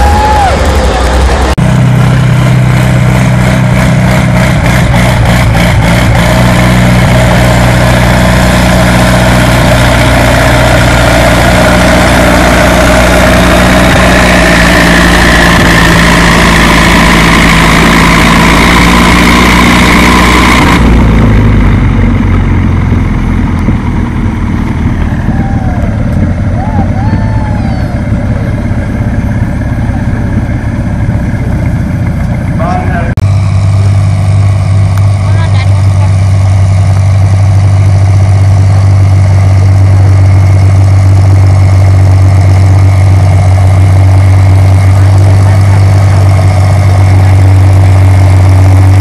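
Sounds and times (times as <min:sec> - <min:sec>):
tractor engine running under load: 0:00.0 - 0:49.0.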